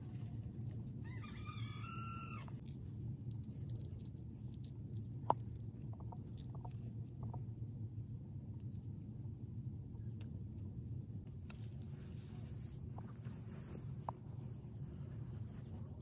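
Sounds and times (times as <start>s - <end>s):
low background rumble: 0.0s - 16.0s
rooster crowing: 1.0s - 2.6s.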